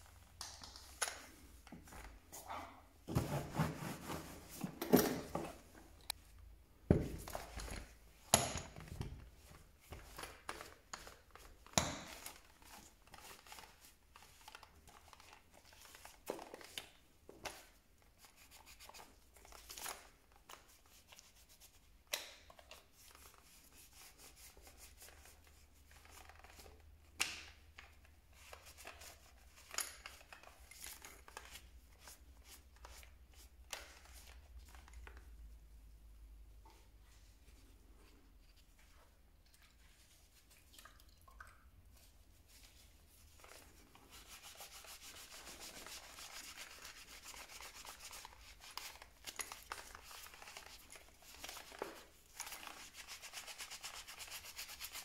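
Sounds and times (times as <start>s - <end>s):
rubbing and scrubbing: 2.3s - 4.8s, 42.0s - 55.0s.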